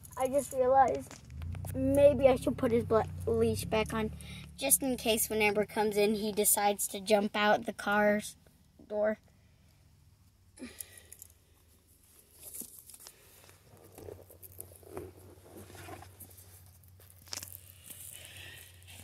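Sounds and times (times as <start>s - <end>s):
low steady hum: 0.0s - 6.4s.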